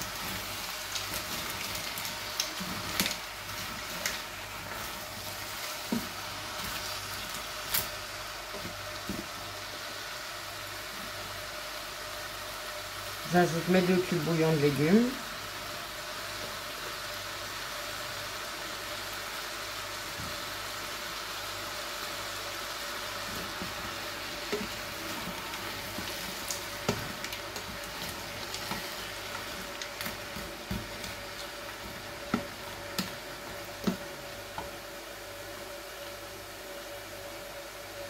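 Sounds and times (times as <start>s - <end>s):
wooden spoon stirring vegetables: 0.0s - 10.1s, 21.9s - 35.8s.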